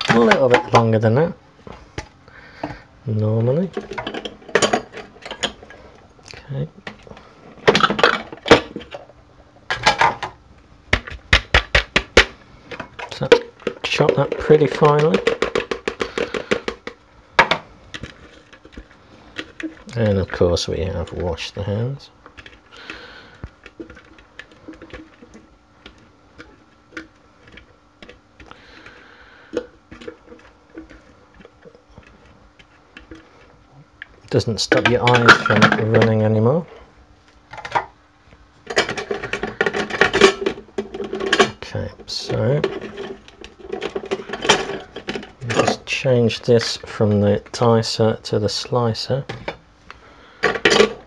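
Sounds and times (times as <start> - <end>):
plastic parts clattering: 0.0 - 0.8, 6.8 - 9.1, 9.7 - 21.4, 22.3 - 32.2, 34.6 - 36.2, 37.5 - 37.9, 38.6 - 45.9, 50.4 - 51.0.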